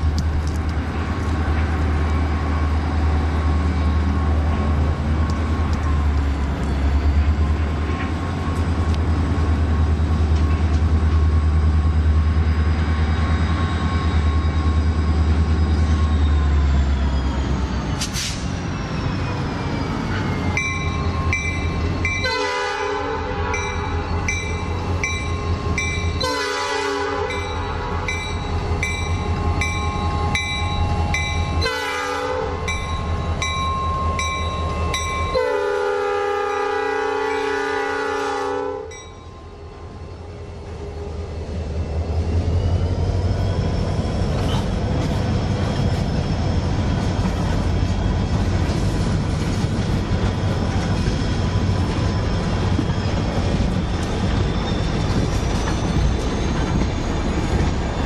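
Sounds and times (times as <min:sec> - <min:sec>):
diesel locomotive rumble: 0:00.0 - 0:58.0
train air horn blasts: 0:22.2 - 0:24.1, 0:25.7 - 0:28.1, 0:31.6 - 0:32.7, 0:35.3 - 0:39.0.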